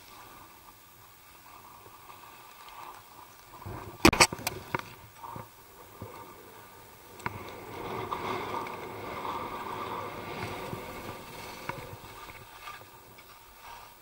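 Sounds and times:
skis scraping over snow: 0.0s - 14.0s
sharp clicks: 4.1s - 4.6s.

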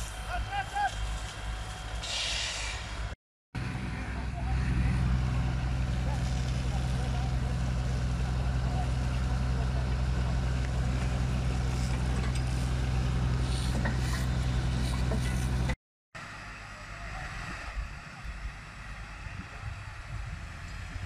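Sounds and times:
hose spraying water: 0.0s - 2.9s, 11.6s - 15.7s
fire truck engine running: 0.0s - 21.0s.

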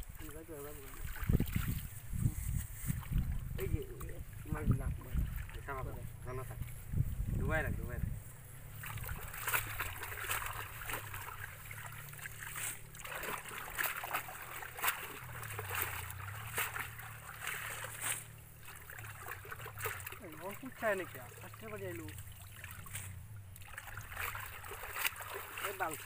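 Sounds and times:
hands splashing in shallow water: 8.7s - 26.0s.

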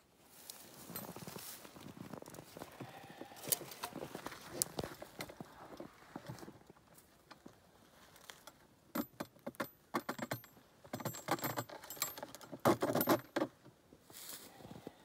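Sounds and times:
metal parts rattling on plastic box: 9.0s - 13.5s.

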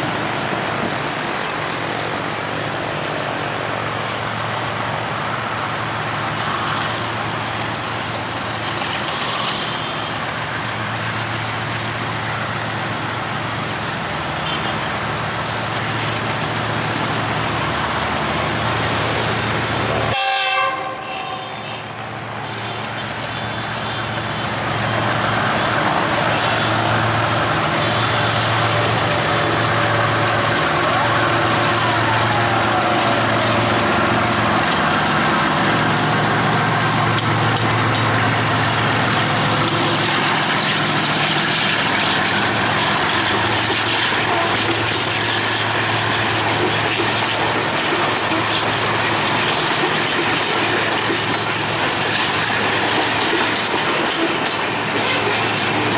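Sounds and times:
freight wagons rolling: 22.7s - 55.9s
locomotive engine chugging: 22.8s - 55.9s.

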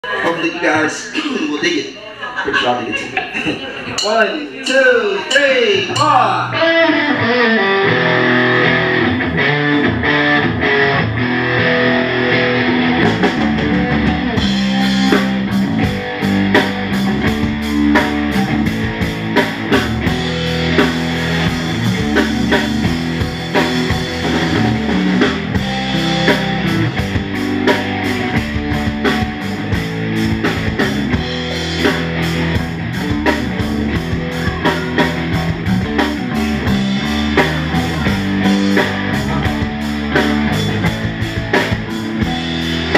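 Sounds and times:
rock band playing: 3.6s - 42.9s
drums and cymbals: 13.0s - 42.9s.

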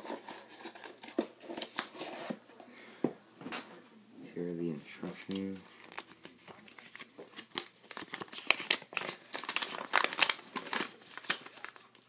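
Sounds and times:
paper leaflet crinkling and rustling: 0.0s - 2.4s, 4.9s - 12.0s.

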